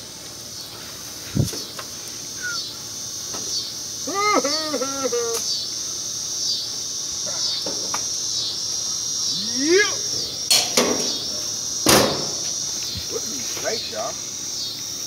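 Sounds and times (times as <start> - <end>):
high insect chorus: 0.0 - 15.0
short hum-like voice: 4.0 - 5.5, 9.2 - 10.5.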